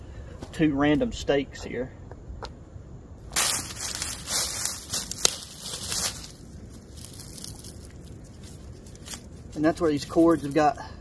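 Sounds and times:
dry leaves crunching under boots: 3.2s - 10.7s.

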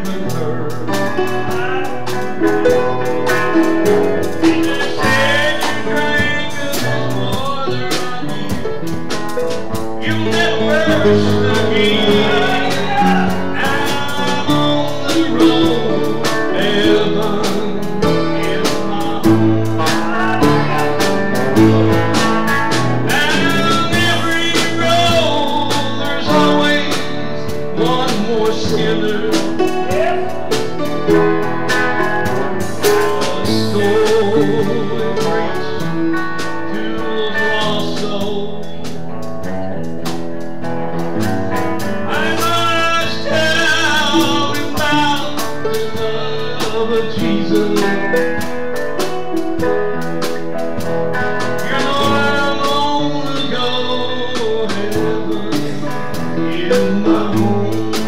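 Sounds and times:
country gospel music: 0.0s - 58.0s
electric guitar bending notes: 0.0s - 58.0s.

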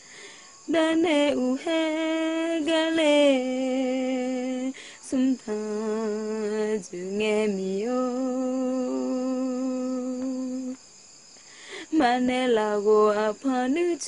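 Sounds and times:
woman breathing: 0.0s - 0.7s, 4.7s - 5.1s, 11.4s - 12.0s
woman singing unaccompanied: 0.0s - 10.8s, 11.6s - 14.0s.

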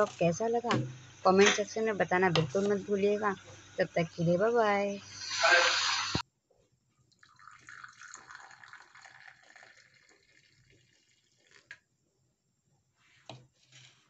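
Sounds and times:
tea pouring into a cup: 7.1s - 11.8s.

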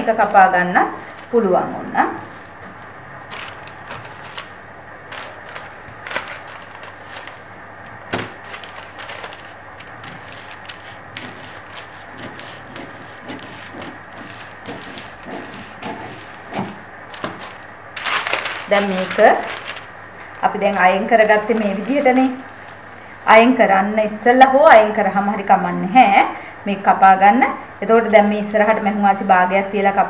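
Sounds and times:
paper rustling: 2.2s - 22.8s
scissors snipping paper: 5.1s - 7.4s, 8.2s - 19.8s.

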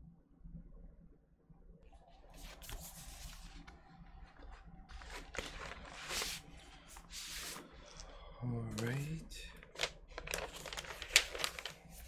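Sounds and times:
paper rustling and sliding: 2.4s - 8.1s, 9.6s - 12.0s.

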